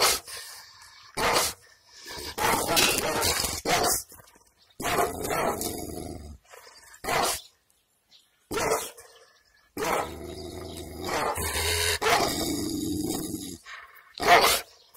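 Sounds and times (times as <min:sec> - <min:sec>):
dog barking: 0:01.2 - 0:01.6, 0:02.4 - 0:04.0, 0:14.2 - 0:14.6.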